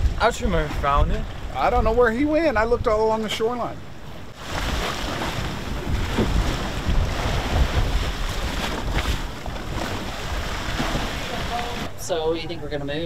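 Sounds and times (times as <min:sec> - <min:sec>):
wind buffeting microphone: 0:00.0 - 0:12.6
water sloshing around boat: 0:03.1 - 0:12.2.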